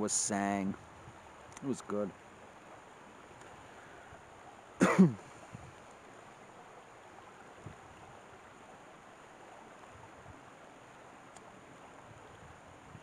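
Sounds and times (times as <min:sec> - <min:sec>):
shallow rocky stream rushing: 0:00.0 - 0:13.0
man clearing his throat: 0:04.8 - 0:05.2.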